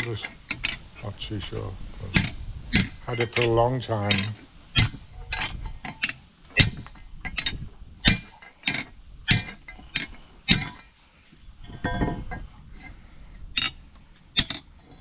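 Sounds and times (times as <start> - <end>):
metallic ringing: 11.6 - 12.6.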